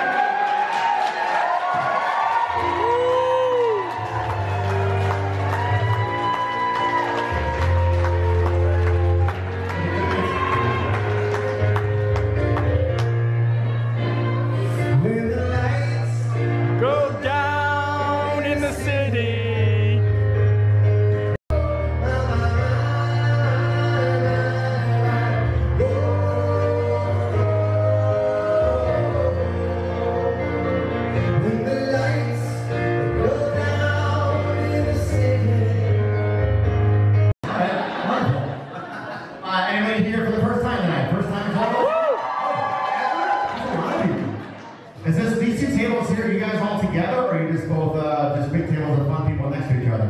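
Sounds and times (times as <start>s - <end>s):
grand piano playing: 2.4s - 38.0s
man singing into a microphone: 14.7s - 20.2s, 21.5s - 36.4s.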